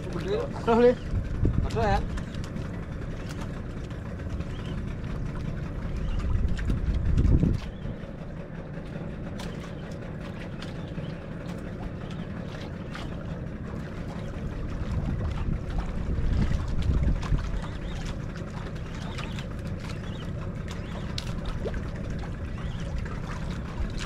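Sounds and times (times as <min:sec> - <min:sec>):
boat engine rumble: 0:00.0 - 0:24.0
wind on microphone: 0:00.6 - 0:02.9, 0:05.8 - 0:08.2, 0:14.0 - 0:20.2.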